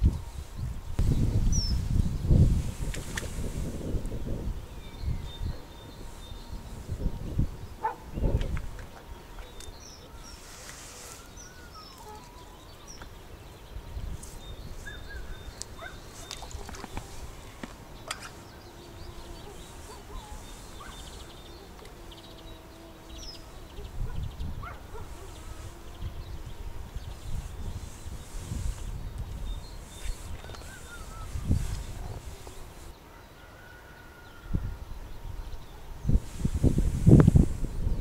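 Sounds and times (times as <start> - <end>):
wind gusts on microphone: 0.0 - 33.0, 34.3 - 38.0
songbird chirps and whistles: 9.0 - 16.8, 27.1 - 32.8.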